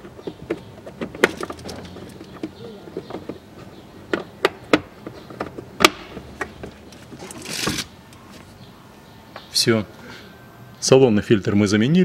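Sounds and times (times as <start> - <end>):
plastic lid scraping: 6.7 - 7.9.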